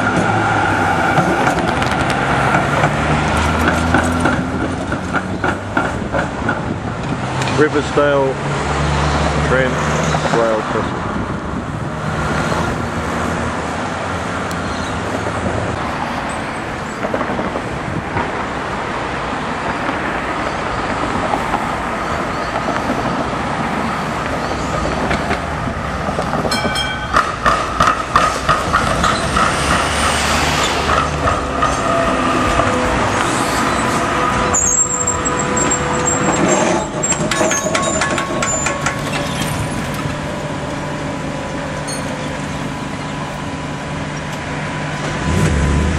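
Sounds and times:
electric tram passing: 0:00.0 - 0:45.9
road traffic: 0:00.0 - 0:45.9
tram wheels clicking over crossing: 0:01.1 - 0:07.6, 0:19.6 - 0:43.5.

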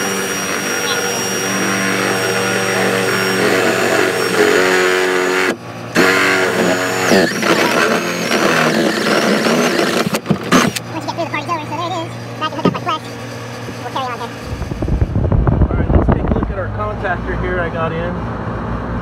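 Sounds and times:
steady low hum: 0:00.0 - 0:07.4, 0:10.2 - 0:19.0
cordless drill drilling sheet metal: 0:00.0 - 0:11.0.

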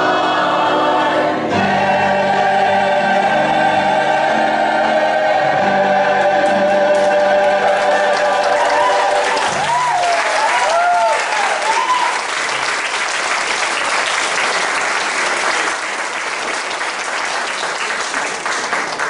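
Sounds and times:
audience applauding: 0:07.0 - 0:19.0
whooping cheers: 0:08.1 - 0:12.4.

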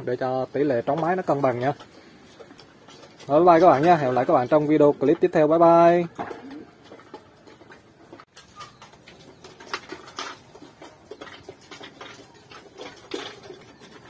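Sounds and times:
beaks pecking at grain: 0:00.6 - 0:14.0
pigeons cooing: 0:06.0 - 0:07.5.

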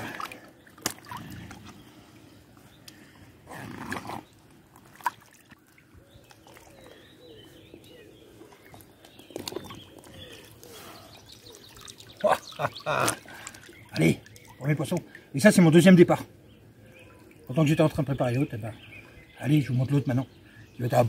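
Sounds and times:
water sloshing and splashing: 0:00.0 - 0:15.8.

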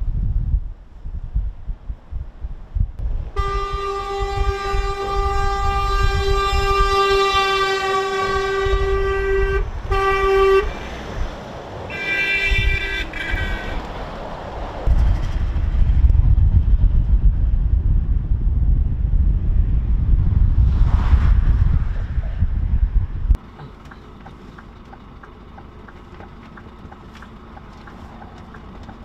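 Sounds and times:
diesel engines and tyres rumbling: 0:00.1 - 0:29.0
lorry horns honking: 0:03.3 - 0:11.2, 0:11.9 - 0:14.2.

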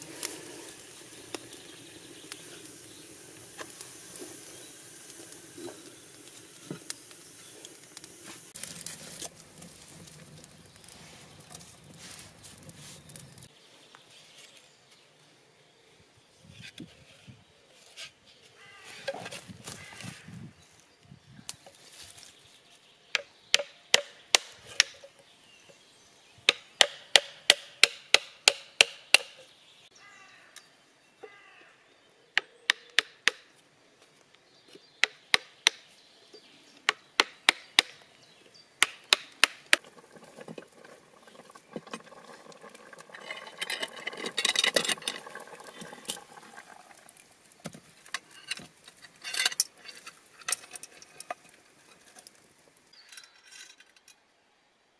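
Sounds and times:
rough scraping: 0:00.0 - 0:13.5, 0:39.7 - 0:52.4.

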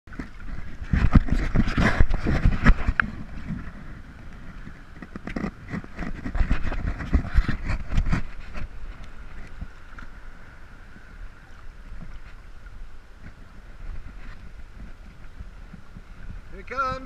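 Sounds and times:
sea water sloshing and splashing: 0:00.1 - 0:16.5
wind on microphone: 0:00.1 - 0:17.0.

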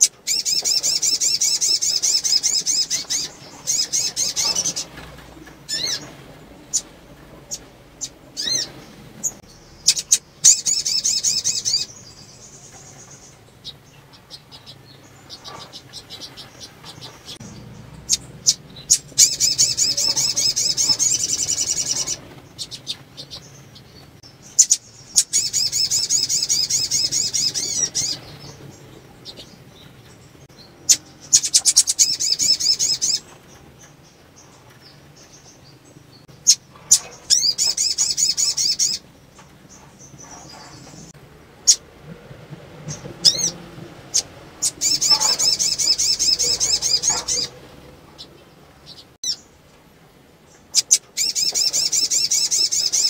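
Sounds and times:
bird twittering high-pitched: 0:07.5 - 0:13.8, 0:14.6 - 0:28.6, 0:44.1 - 0:47.6, 0:50.7 - 0:53.0.

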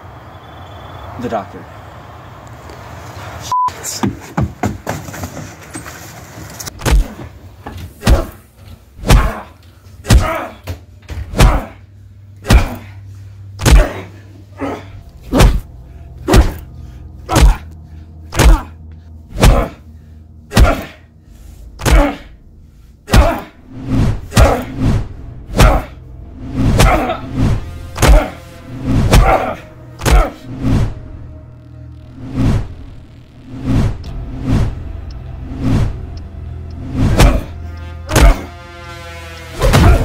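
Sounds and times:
low sustained bass tone: 0:10.8 - 0:40.0.

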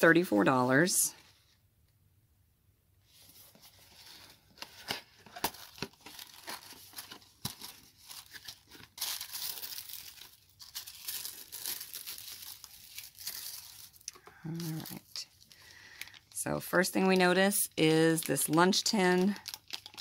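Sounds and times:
tissue paper rustling: 0:03.0 - 0:15.6, 0:16.8 - 0:20.0.

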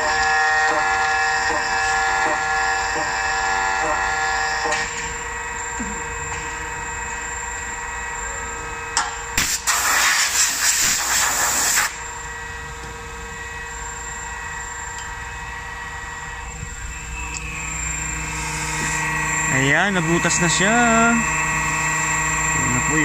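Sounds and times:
milling machine motor whine: 0:00.0 - 0:09.5, 0:10.9 - 0:23.0
loud hiss: 0:09.4 - 0:12.0.

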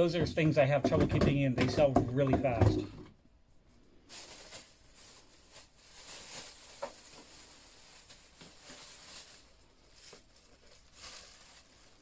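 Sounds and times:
plastic bag rustling: 0:04.0 - 0:12.0.

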